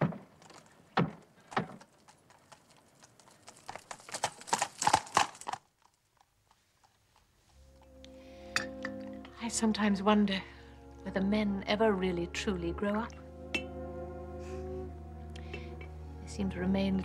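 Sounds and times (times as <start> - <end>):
horse hooves clip-clopping: 0.0 - 8.1.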